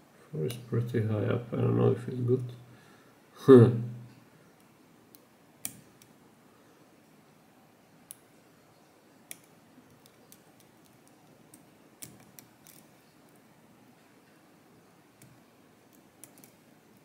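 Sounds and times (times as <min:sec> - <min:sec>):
faint metallic lock picking clicks: 0:09.3 - 0:12.9, 0:15.2 - 0:16.6.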